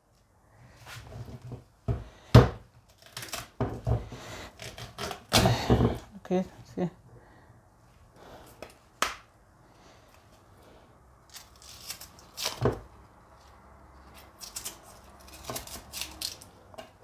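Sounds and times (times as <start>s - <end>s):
knife cutting and scraping peel: 2.9s - 3.6s, 4.5s - 5.6s, 11.2s - 12.9s, 14.0s - 16.8s.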